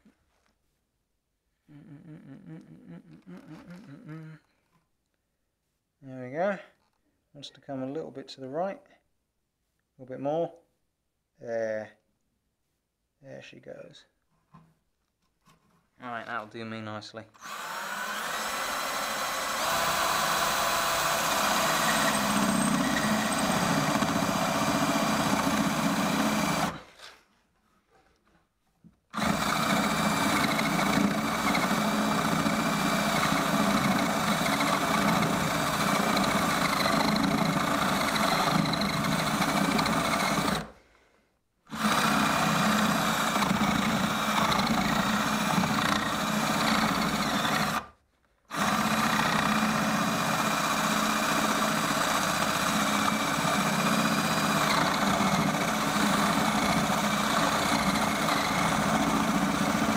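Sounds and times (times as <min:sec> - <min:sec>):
power drill boring through wood: 0:17.4 - 0:27.0, 0:29.1 - 0:40.8, 0:41.7 - 0:59.9.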